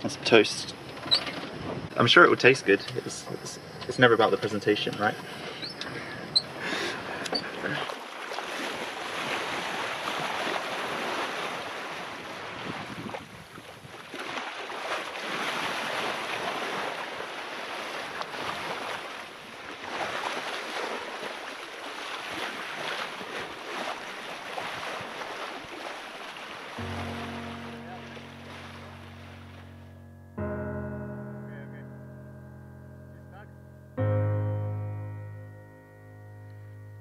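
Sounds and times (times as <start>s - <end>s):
wind and sea rushing: 0.0s - 30.5s
wind buffeting microphone: 1.4s - 2.0s, 8.5s - 14.1s.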